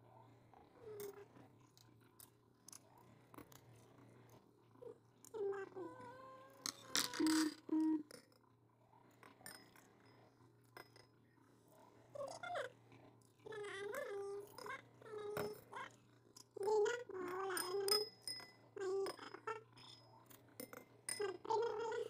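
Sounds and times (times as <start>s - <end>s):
spoons clinking on steel bowls: 17.6s - 18.6s.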